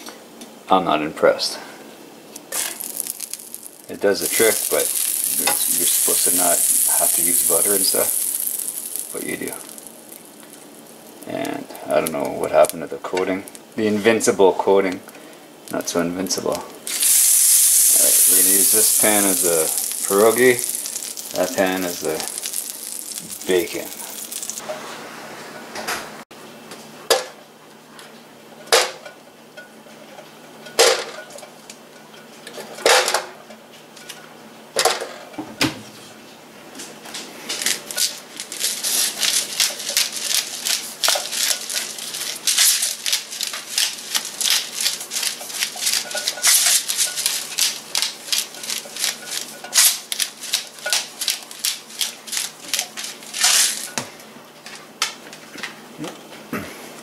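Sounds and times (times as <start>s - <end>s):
pepper mill grinding: 2.5s - 13.9s, 16.8s - 24.6s, 37.5s - 54.0s.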